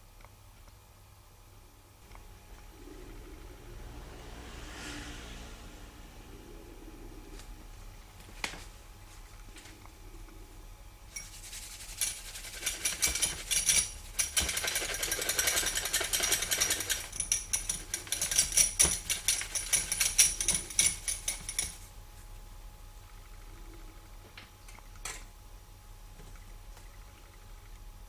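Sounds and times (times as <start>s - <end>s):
whisk rattling against glass: 11.1s - 21.9s.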